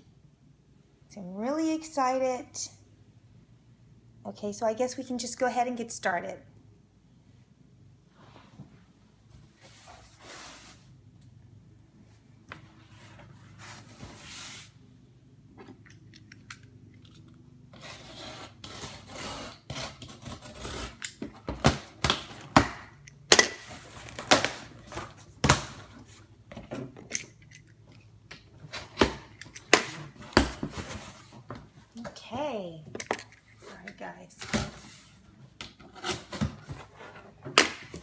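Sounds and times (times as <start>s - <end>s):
box cutter scraping tape: 17.7s - 21.3s.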